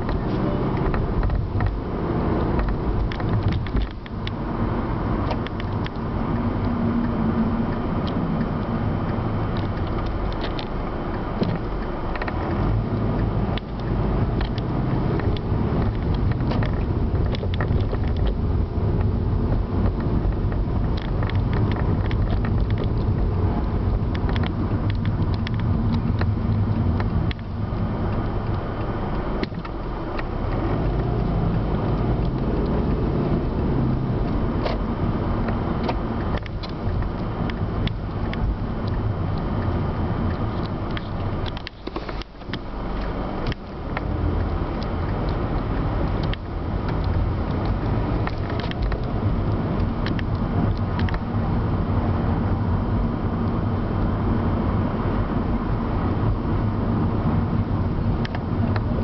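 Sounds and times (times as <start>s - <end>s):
car cabin road rumble: 0.0s - 59.0s
small clicks and rattles: 2.5s - 4.4s, 8.0s - 19.2s, 19.8s - 51.4s.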